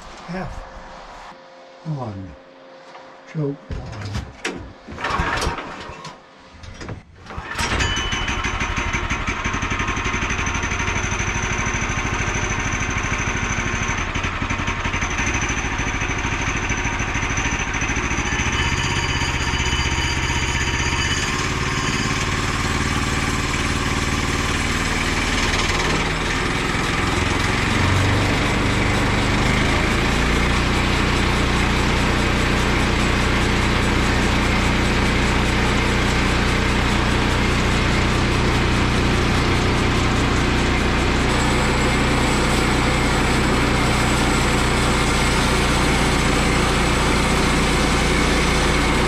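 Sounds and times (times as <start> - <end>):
engine pull-start cord: 4.1 - 10.1
small gas engine running: 5.0 - 5.8, 7.3 - 49.0.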